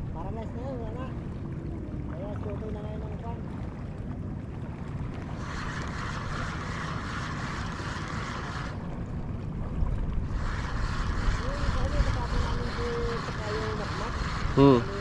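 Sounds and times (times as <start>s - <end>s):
boat engine low rumble: 0.0s - 15.0s
wind on microphone: 5.0s - 15.0s
hiss: 10.3s - 14.9s.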